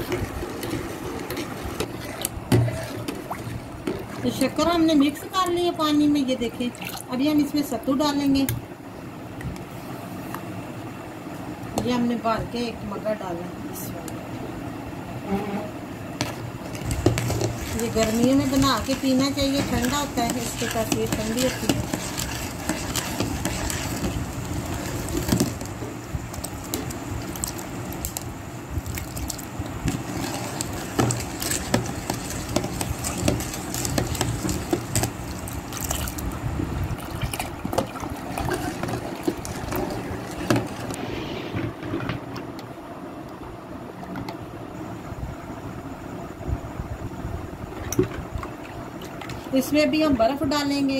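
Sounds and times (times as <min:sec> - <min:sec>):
liquid swishing: 0:00.0 - 0:05.4, 0:16.2 - 0:41.5.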